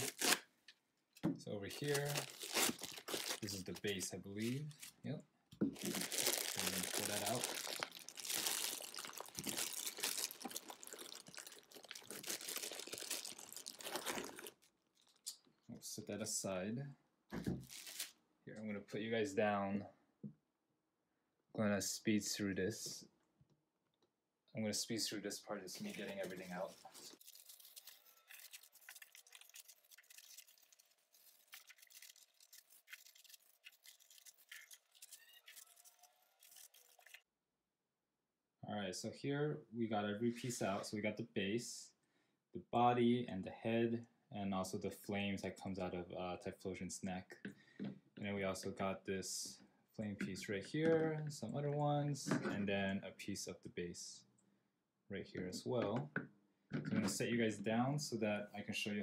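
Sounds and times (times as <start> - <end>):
plastic bags crinkling: 1.8 - 4.0, 5.7 - 15.2, 25.8 - 37.2.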